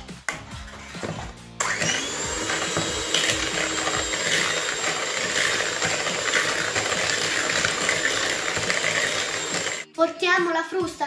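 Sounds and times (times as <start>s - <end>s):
electric hand mixer whisking: 1.0s - 9.9s.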